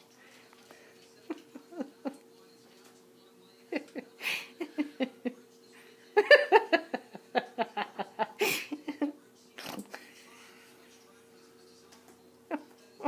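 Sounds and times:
faint steady hum: 0:00.0 - 0:13.0
person giggling: 0:01.2 - 0:02.2, 0:03.7 - 0:05.4, 0:06.1 - 0:09.2.

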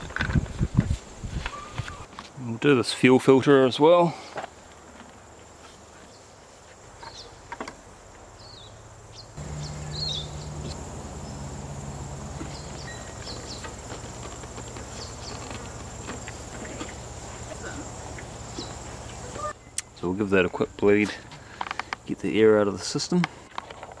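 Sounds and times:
insects trilling and chirping: 0:02.0 - 0:24.0
steady low hum: 0:08.8 - 0:20.8.

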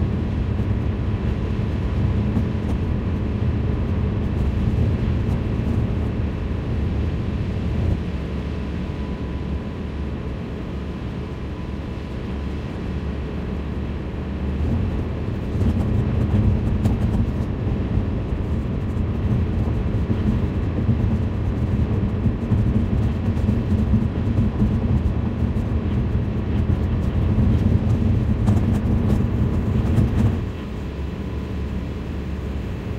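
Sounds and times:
car cabin road noise: 0:25.9 - 0:32.9.

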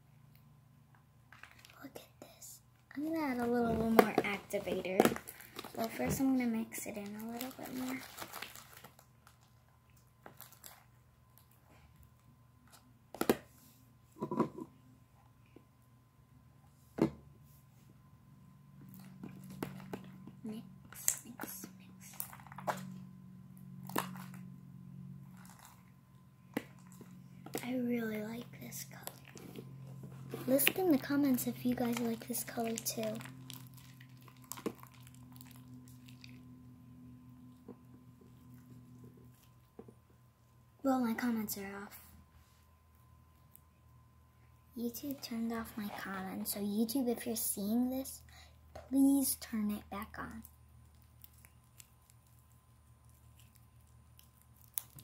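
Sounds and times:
steady low hum: 0:00.0 - 0:55.0
slime crackle: 0:03.0 - 0:09.5, 0:30.4 - 0:36.4, 0:50.3 - 0:55.0
slime squelching by hand: 0:23.8 - 0:24.5, 0:25.2 - 0:36.5.

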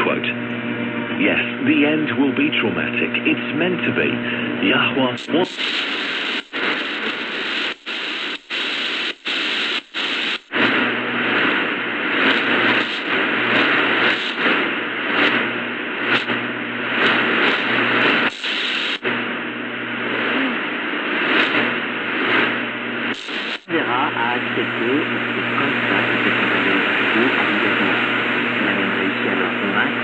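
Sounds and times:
low hum: 0:00.0 - 0:30.0
radio static hiss: 0:00.0 - 0:30.0.

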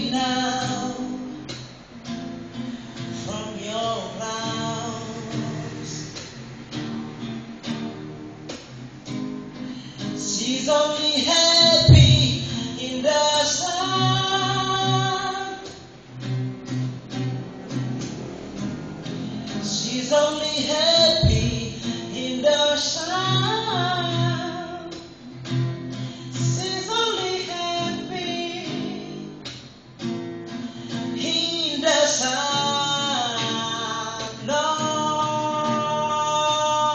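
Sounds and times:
man singing: 0:00.0 - 0:01.6, 0:03.2 - 0:06.2, 0:09.8 - 0:15.8, 0:19.3 - 0:25.0, 0:26.2 - 0:29.2, 0:30.8 - 0:36.9
guitar accompaniment: 0:00.0 - 0:36.9
deep thump: 0:11.8 - 0:12.6, 0:21.2 - 0:21.8.

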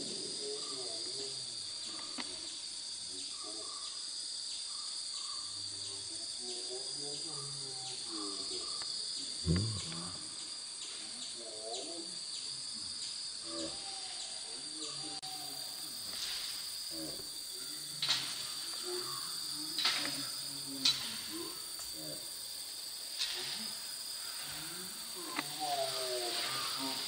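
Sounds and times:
high insect drone: 0:00.0 - 0:27.0
sharp cracks: 0:19.8 - 0:21.4.

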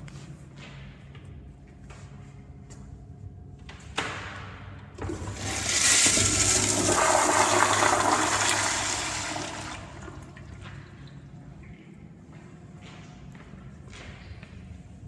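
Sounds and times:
toilet flushing: 0:05.0 - 0:10.8.

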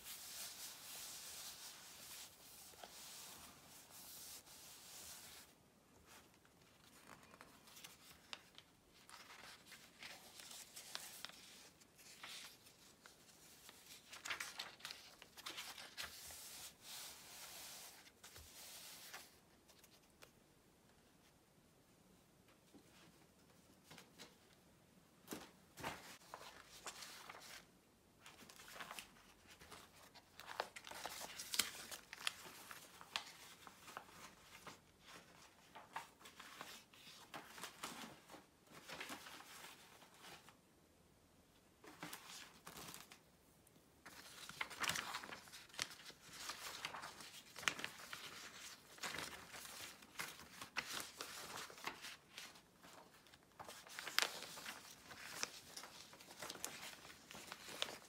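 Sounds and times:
paper rustling and crinkling: 0:00.0 - 0:20.3, 0:25.3 - 0:40.6, 0:41.8 - 0:43.2, 0:44.0 - 0:58.0.

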